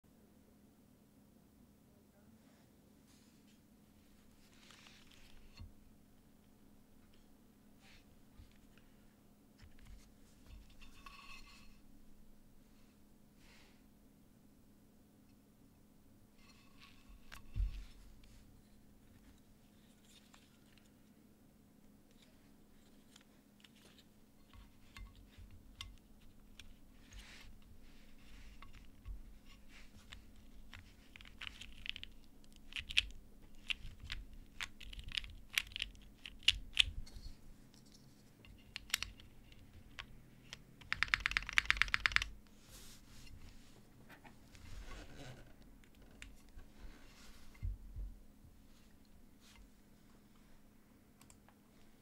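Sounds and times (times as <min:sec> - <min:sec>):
mechanical keyboard keystrokes: 0:40.8 - 0:42.3.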